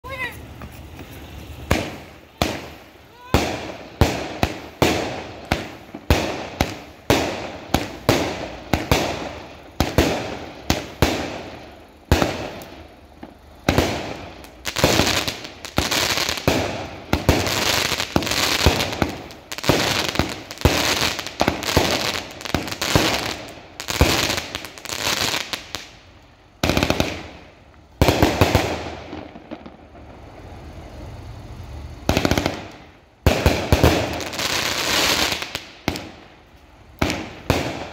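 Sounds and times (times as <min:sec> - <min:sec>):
firework shells bursting and crackling: 0:00.0 - 0:31.0, 0:31.7 - 0:37.9.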